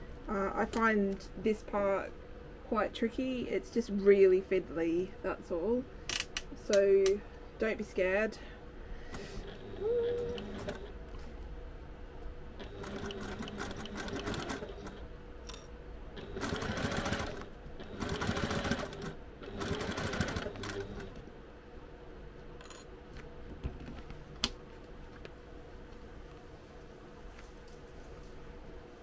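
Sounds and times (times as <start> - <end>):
sewing machine stitching: 9.4 - 10.9, 12.6 - 15.0, 16.2 - 21.2.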